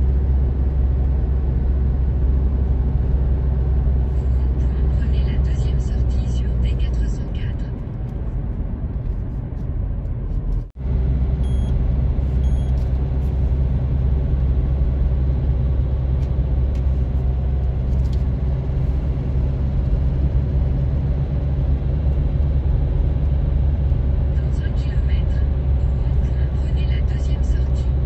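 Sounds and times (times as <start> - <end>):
car road and engine rumble: 0.0 - 28.0
short high beeps: 11.4 - 11.7, 12.4 - 12.8.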